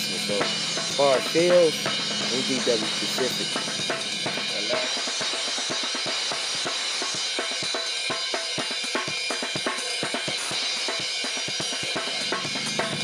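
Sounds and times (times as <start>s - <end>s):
bass drum: 0.0s - 8.3s, 11.6s - 13.0s
snare drum strokes: 0.0s - 12.2s
ride cymbal wash: 0.0s - 13.0s.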